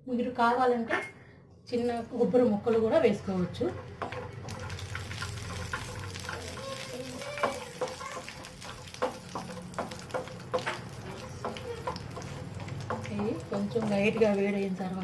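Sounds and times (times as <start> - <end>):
wooden spatula scraping a pan: 3.5 - 6.8
nuts sizzling in a pan: 3.9 - 14.8.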